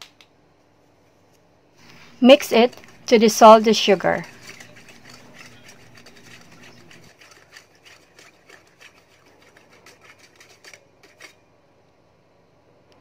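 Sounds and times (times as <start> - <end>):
chopstick stirring in metal bowl: 1.8 - 11.4.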